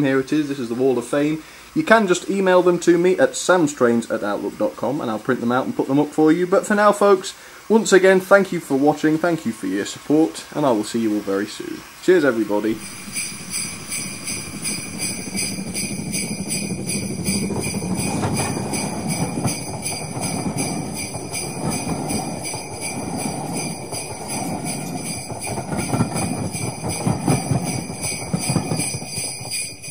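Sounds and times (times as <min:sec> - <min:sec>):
sleigh bells jingling: 0:12.6 - 0:29.9
low rumble: 0:12.8 - 0:29.2.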